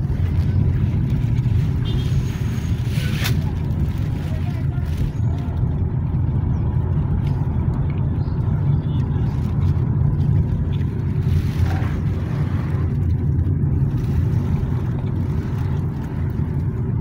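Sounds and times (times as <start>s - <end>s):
car engine and tyre rumble: 0.0s - 17.0s.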